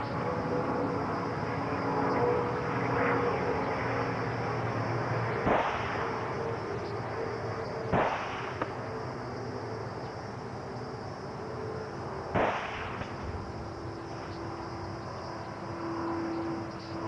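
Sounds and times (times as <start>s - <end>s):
steady hum: 0.0s - 17.0s
sharp bangs: 5.4s - 6.2s, 7.9s - 8.8s, 12.3s - 13.4s.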